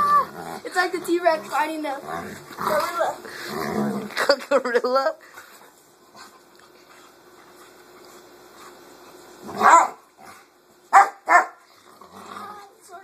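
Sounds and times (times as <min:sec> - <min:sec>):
dog growling: 0:00.0 - 0:04.3, 0:11.7 - 0:12.8
dog barking: 0:09.6 - 0:10.0, 0:10.9 - 0:11.6.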